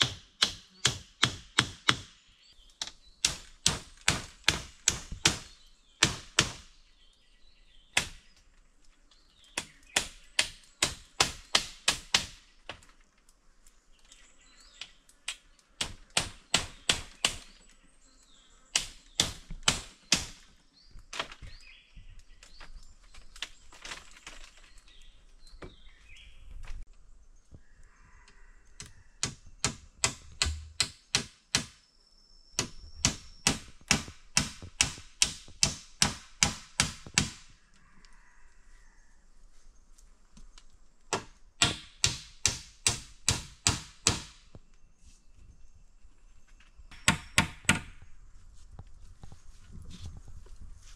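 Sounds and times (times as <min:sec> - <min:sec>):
machete chopping bamboo: 0:00.0 - 0:02.1, 0:02.8 - 0:06.7, 0:07.9 - 0:08.3, 0:09.6 - 0:12.4, 0:15.8 - 0:17.6, 0:18.8 - 0:20.4, 0:29.2 - 0:31.8, 0:32.6 - 0:37.5, 0:41.1 - 0:44.4.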